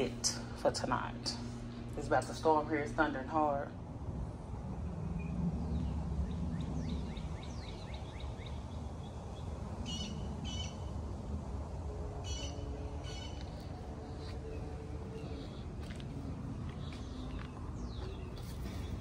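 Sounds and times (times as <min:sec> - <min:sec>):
birds chirping: 0:05.1 - 0:10.9, 0:12.2 - 0:19.0.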